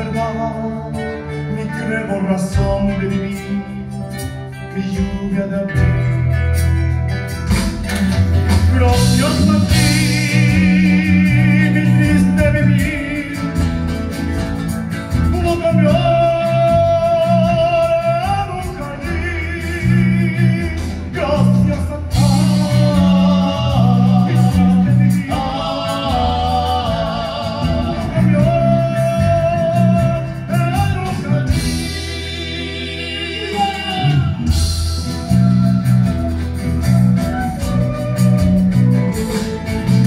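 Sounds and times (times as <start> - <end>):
men singing with vibrato: 0.0 - 6.3, 8.5 - 14.2, 15.2 - 40.0
bass line: 0.0 - 40.0
strummed acoustic guitars: 0.0 - 40.0.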